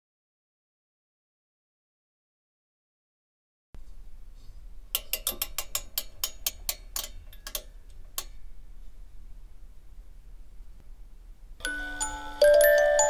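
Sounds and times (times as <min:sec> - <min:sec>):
clockwork ratchet clicks: 0:05.0 - 0:08.3.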